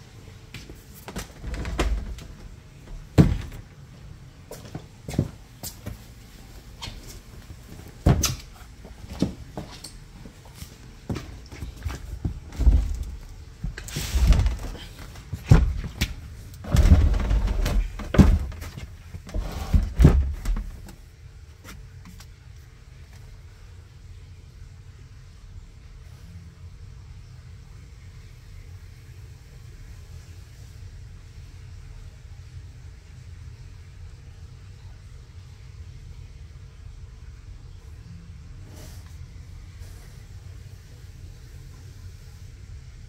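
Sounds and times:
faint steady hum: 0.0 - 43.0
rustling scrape: 13.8 - 15.2.

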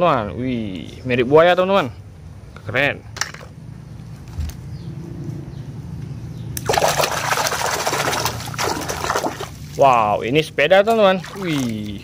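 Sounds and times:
water splashing and sloshing: 6.6 - 10.2, 10.8 - 12.0.

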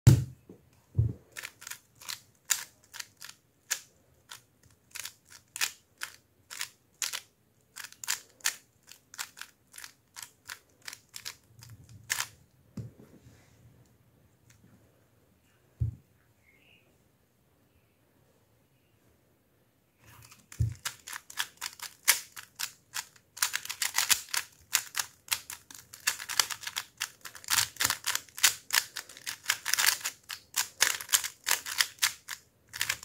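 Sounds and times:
puzzle cube clicking while turned: 1.3 - 12.4, 20.2 - 33.0.

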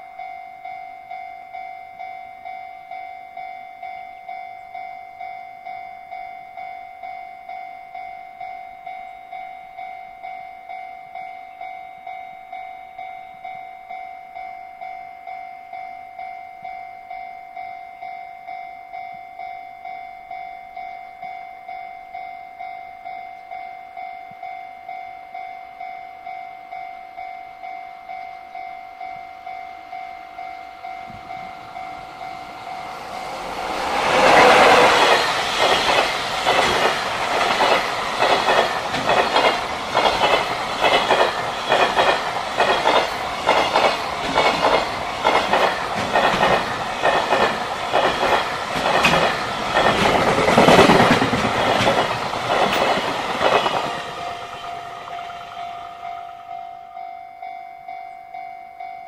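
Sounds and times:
freight train passing: 0.0 - 59.0
level-crossing alarm dinging: 0.0 - 59.0
train wheels clickety-clack: 31.0 - 57.0.

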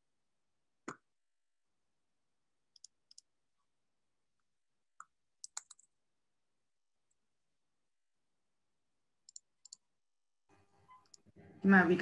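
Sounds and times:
computer mouse clicks: 2.7 - 3.3, 5.0 - 6.0, 9.2 - 9.8.

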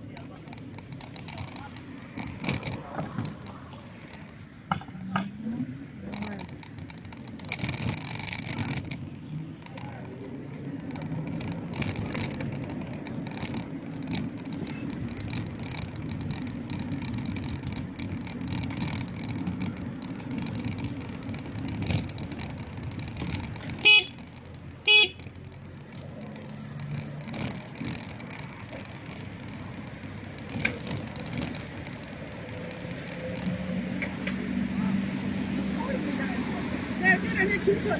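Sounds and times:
passing cars and scooters: 0.0 - 37.9
vehicle horn toots: 23.8 - 24.2, 24.9 - 25.2.

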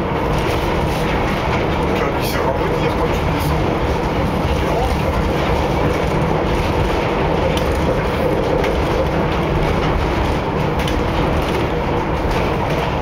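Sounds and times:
wheels rumbling on rails: 0.0 - 13.0.

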